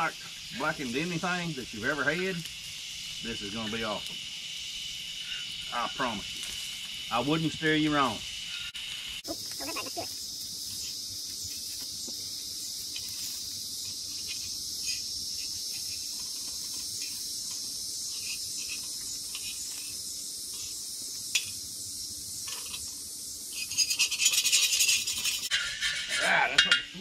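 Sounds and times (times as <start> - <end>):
high insect chorus: 0.0 - 27.0
tongs scraping across pan: 12.8 - 21.6, 22.4 - 27.0.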